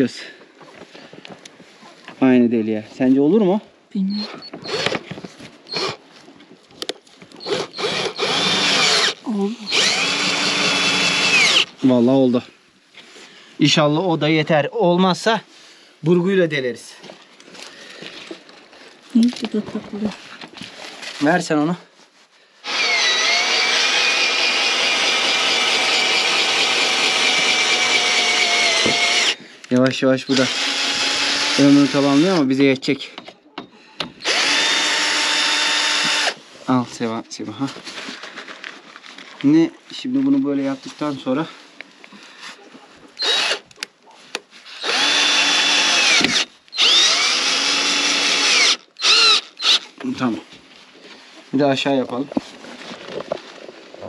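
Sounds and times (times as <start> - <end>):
cordless drill drilling into board: 4.5 - 5.0, 5.7 - 6.0, 7.4 - 11.8, 22.6 - 29.4, 30.3 - 32.5, 34.2 - 36.4, 43.2 - 43.7, 44.6 - 49.9.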